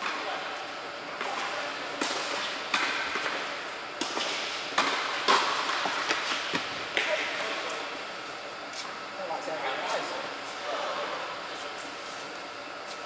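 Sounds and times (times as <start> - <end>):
tennis balls bouncing on hard court: 1.2 - 7.2
tennis balls struck by rackets: 1.2 - 7.3.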